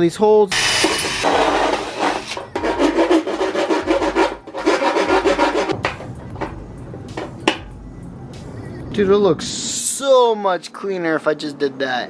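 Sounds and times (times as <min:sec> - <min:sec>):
hand file rasping on metal: 0:00.6 - 0:05.8.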